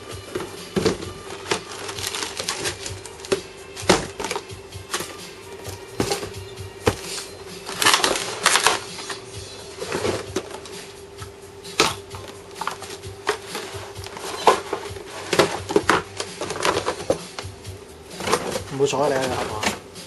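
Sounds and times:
plastic packaging crinkling: 0.4 - 10.7, 11.8 - 17.5.

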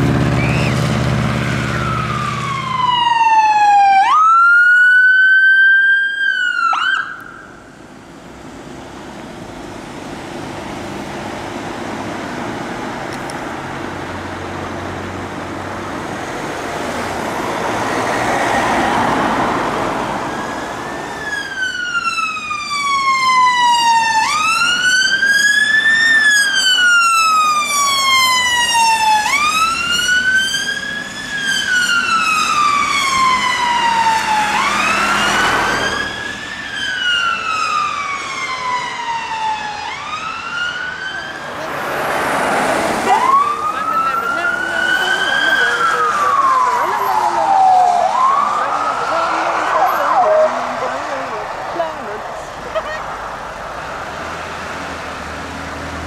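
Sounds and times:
ambulance siren wailing: 0.0 - 7.9, 16.9 - 53.0
road traffic: 0.0 - 56.0
vehicle passing: 8.4 - 30.4, 32.2 - 56.0.

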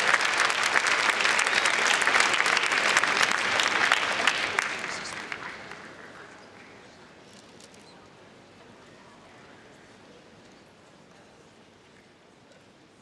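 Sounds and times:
audience applauding: 0.0 - 6.9.

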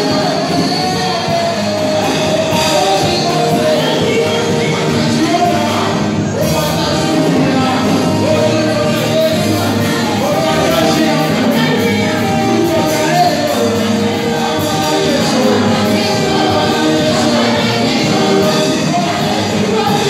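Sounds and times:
group singing gospel: 0.0 - 20.0
musical backing with beat: 0.0 - 20.0.

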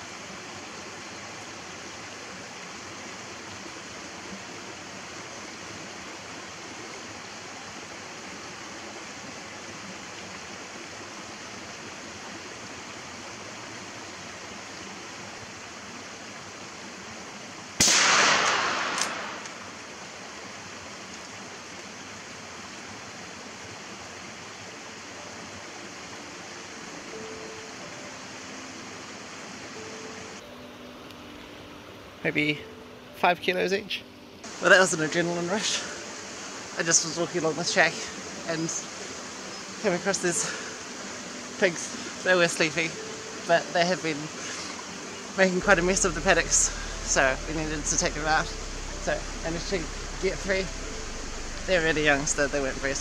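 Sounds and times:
rifle shot: 17.8 - 19.8
steady rushing background noise: 34.4 - 53.0.

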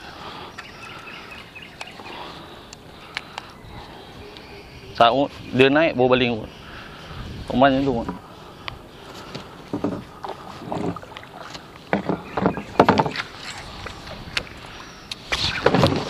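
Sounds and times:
light water noise: 6.5 - 16.0.

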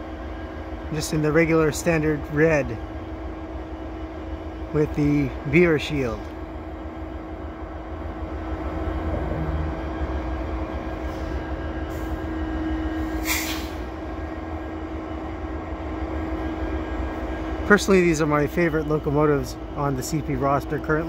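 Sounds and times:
diesel locomotives idling: 0.0 - 21.0
short hiss: 13.1 - 13.8.

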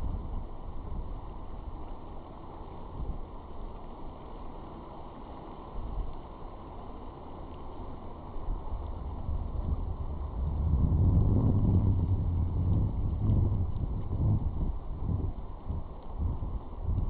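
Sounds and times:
wind buffeting microphone: 8.4 - 17.0.

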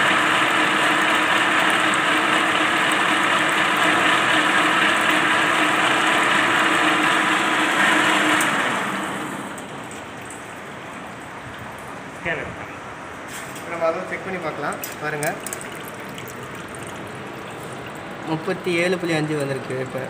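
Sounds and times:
lathe motor hum: 0.0 - 9.7
coolant water splashing: 0.0 - 12.4, 14.1 - 20.0.

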